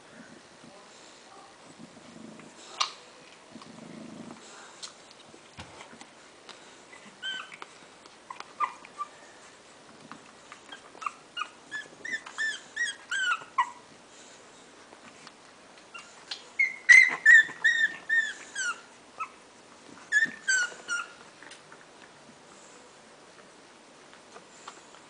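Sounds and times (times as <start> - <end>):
puppies squealing and whimpering: 6.9 - 7.6, 8.3 - 9.2, 10.8 - 13.8, 16.0 - 19.4, 20.1 - 21.2.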